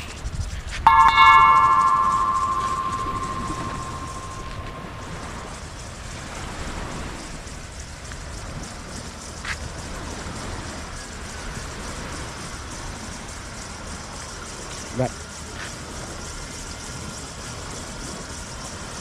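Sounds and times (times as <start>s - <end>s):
bell-like ringing tone: 0.9s - 5.5s.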